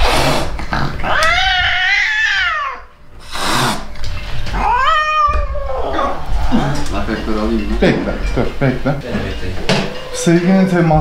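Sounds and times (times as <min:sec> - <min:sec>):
cat hissing: 0:00.0 - 0:06.5
cat yowling: 0:01.0 - 0:02.9, 0:04.5 - 0:06.3.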